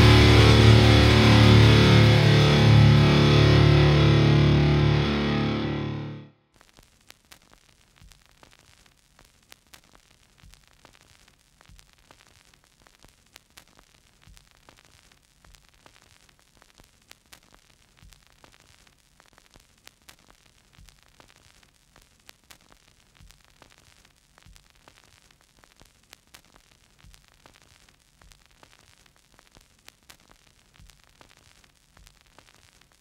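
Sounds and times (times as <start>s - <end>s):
static hiss: 0.0s - 33.0s
crackling clicks: 6.6s - 33.0s.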